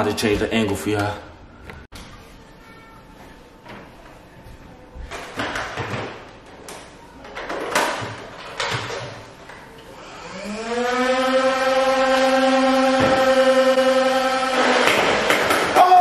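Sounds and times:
toy blaster flywheels whining: 0:10.0 - 0:14.6.

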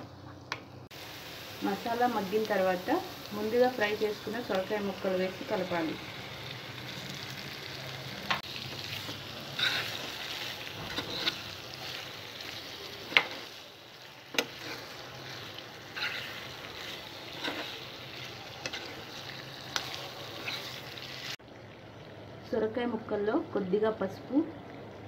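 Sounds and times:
food sizzling in oil: 0:00.1 - 0:24.7
spatula knocking and scraping pan: 0:09.0 - 0:11.5, 0:14.3 - 0:15.0, 0:15.9 - 0:17.8.

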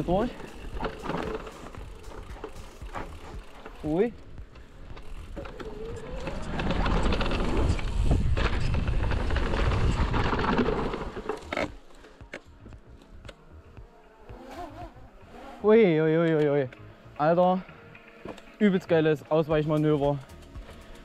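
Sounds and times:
bike rattling clicks: 0:00.0 - 0:14.8, 0:19.6 - 0:21.0
bike tyre noise: 0:00.0 - 0:16.4
wind rushing over microphone: 0:05.8 - 0:11.1.

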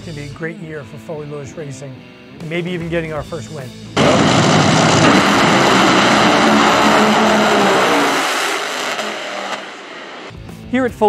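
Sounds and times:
dragster engines at full throttle: 0:04.0 - 0:10.3.

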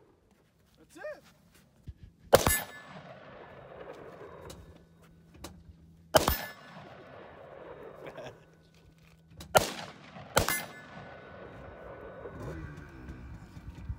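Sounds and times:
gunshots with echo: 0:02.3 - 0:04.5, 0:06.1 - 0:08.3, 0:09.5 - 0:12.8.

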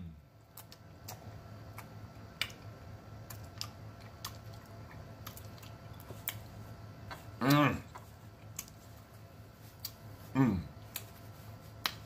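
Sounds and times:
steady low hum: 0:00.0 - 0:12.0
mouth clicks and smacks: 0:00.5 - 0:08.8
person chewing: 0:00.5 - 0:12.0.

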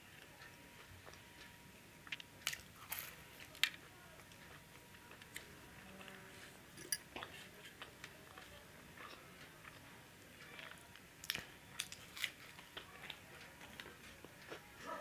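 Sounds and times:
biting and chewing food: 0:02.0 - 0:14.8.

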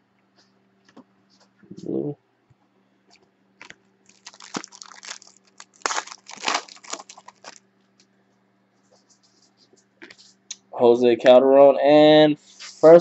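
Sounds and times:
foil wrapper tearing and crinkling: 0:04.1 - 0:07.6.

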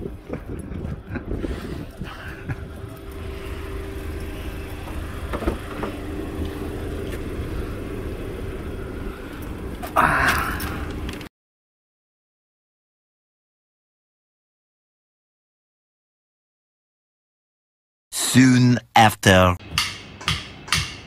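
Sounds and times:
low rumble with faint hum: 0:00.0 - 0:11.3.

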